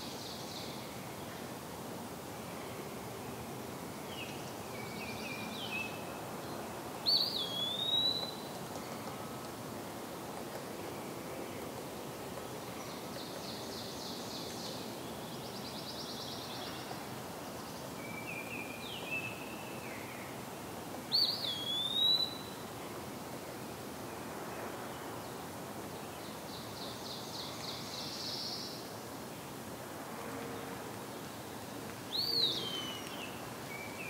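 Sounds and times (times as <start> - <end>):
background hiss: 0.0 - 34.0
bird singing slurred whistles: 7.1 - 8.3, 21.2 - 22.5.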